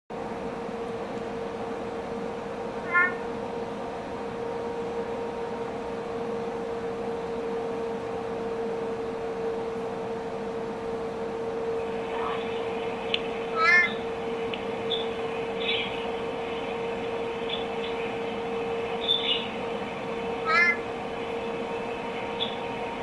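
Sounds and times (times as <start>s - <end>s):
steady background hum: 0.1s - 23.0s
frog call rising note: 2.8s - 3.3s, 13.5s - 14.0s, 20.4s - 20.8s.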